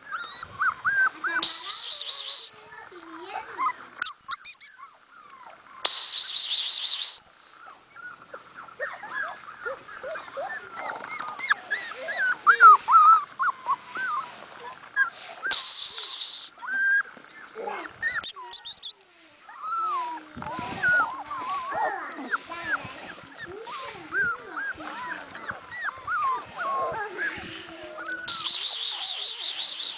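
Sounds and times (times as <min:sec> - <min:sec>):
puppy whimpering and whining: 0:00.0 - 0:02.5, 0:03.4 - 0:29.9
high hissing burst: 0:05.8 - 0:07.2, 0:15.4 - 0:16.5.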